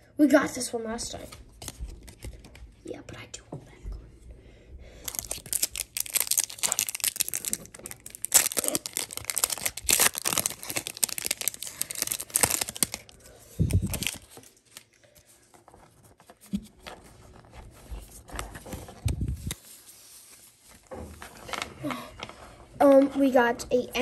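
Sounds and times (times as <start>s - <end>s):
foil wrapper tearing and crinkling: 5.0s - 15.0s.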